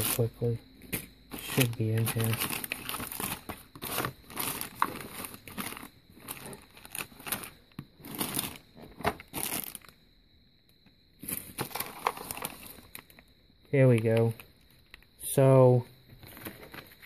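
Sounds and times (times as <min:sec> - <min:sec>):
rummaging in plastic drawer: 0:00.9 - 0:09.8, 0:11.2 - 0:12.8, 0:16.2 - 0:17.0
plastic bags crinkling: 0:01.3 - 0:09.9, 0:11.2 - 0:13.2, 0:16.2 - 0:17.0.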